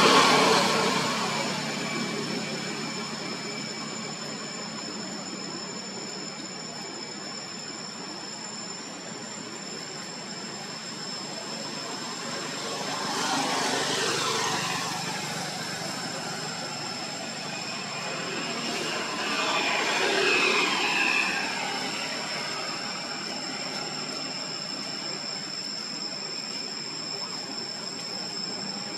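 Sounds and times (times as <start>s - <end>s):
passing engine: 0.0s - 4.5s
outdoor background noise: 0.0s - 28.9s
steady high-pitched tones: 0.0s - 28.9s.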